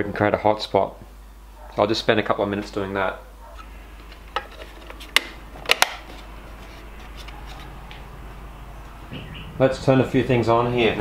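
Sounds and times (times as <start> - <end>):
plastic cover clicking: 4.0 - 6.2.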